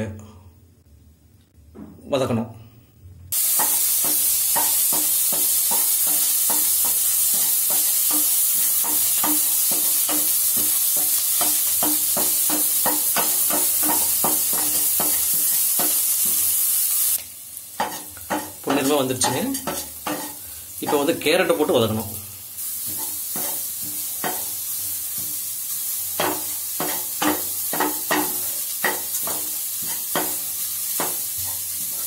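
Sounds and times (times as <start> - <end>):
food sizzling in hot oil: 3.3 - 32.0
spatula scraping and stirring: 17.8 - 20.4, 26.2 - 30.4.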